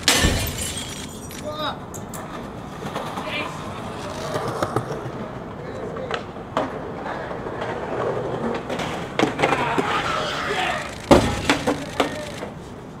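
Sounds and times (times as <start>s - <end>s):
skateboard wheels rolling on concrete: 0.8s - 13.0s
skateboard clacking on concrete: 2.2s - 10.4s.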